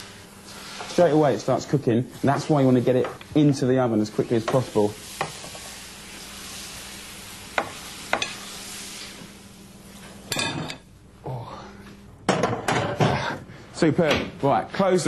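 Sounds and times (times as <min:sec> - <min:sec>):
batter sizzling in hot oil: 0:00.0 - 0:10.4.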